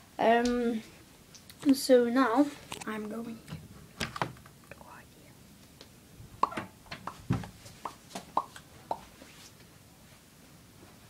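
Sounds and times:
footsteps knocks and thumps: 6.6 - 8.3.

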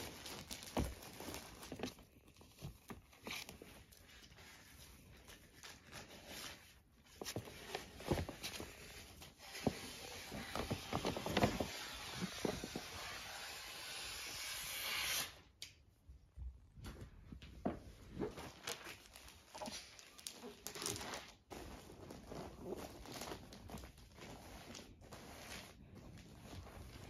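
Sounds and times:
paper bag crinkling: 0.0 - 6.3, 18.3 - 27.0.

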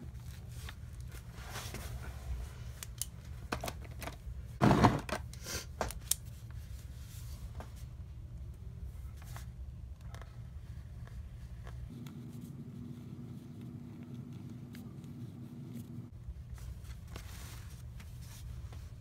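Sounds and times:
low hum: 7.9 - 17.8.

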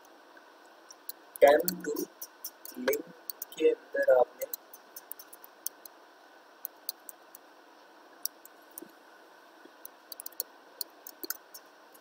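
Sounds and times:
faint steady hiss: 0.0 - 12.0
computer keyboard typing: 1.4 - 3.6, 4.4 - 5.8, 10.1 - 12.0.

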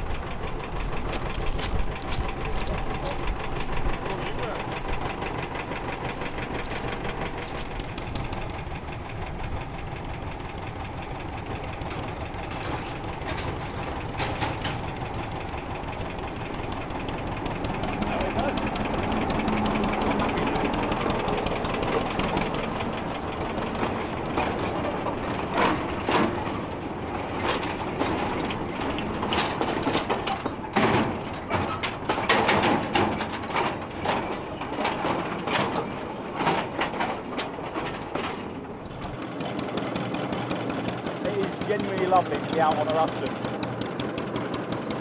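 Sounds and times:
diesel locomotive engine: 0.0 - 45.0
metallic clanks and knocks: 11.7 - 45.0.

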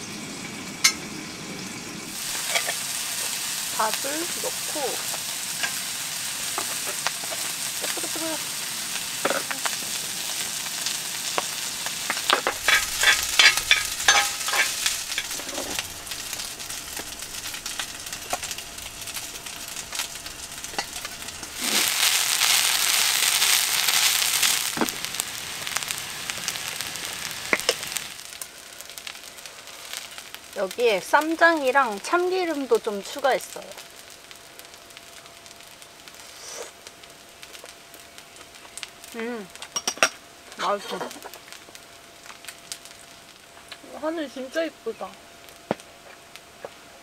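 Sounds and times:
rice sizzling in a pan: 0.0 - 47.0
utensil scraping a pan: 12.2 - 18.6.

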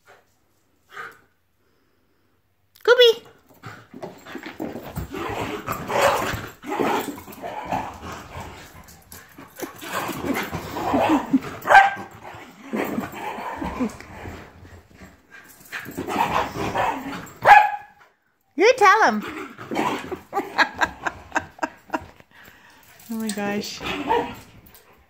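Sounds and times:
dogs barking: 10.9 - 12.1, 16.2 - 18.0.

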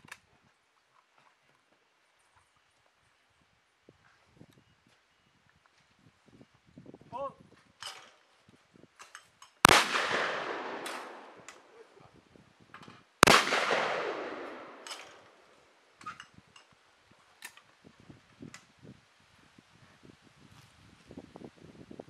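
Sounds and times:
shotgun shots: 9.7 - 11.8, 13.2 - 15.6.

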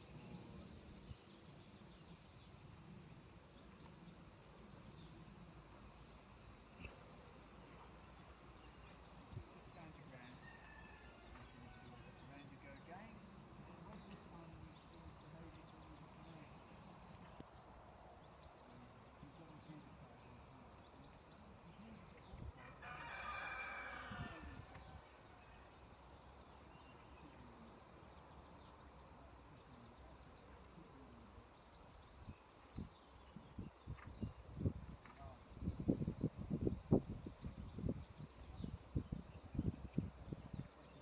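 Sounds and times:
faint rooster crowing: 10.3 - 12.2, 22.6 - 25.4.

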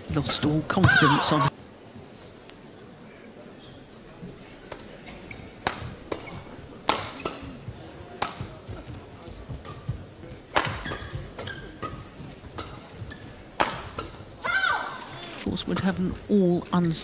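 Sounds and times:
rackets hitting shuttlecock: 5.6 - 7.6, 8.2 - 16.1.

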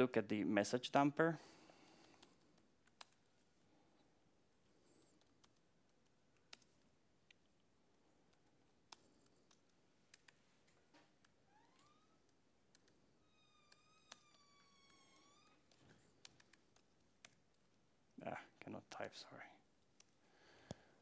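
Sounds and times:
laptop keyboard keystrokes: 1.9 - 3.4, 4.9 - 6.8, 8.3 - 10.4, 11.1 - 13.0, 13.7 - 17.8.

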